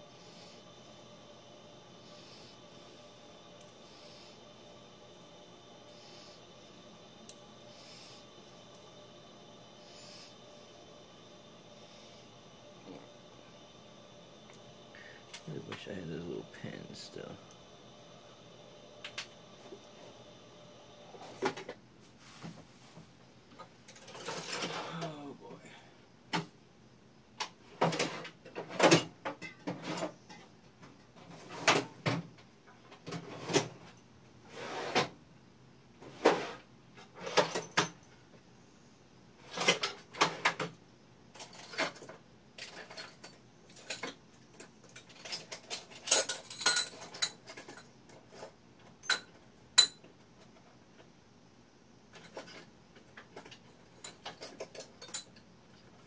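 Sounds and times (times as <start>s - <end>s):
metal parts clinking and rattling: 41.4s - 50.0s, 53.4s - 55.5s.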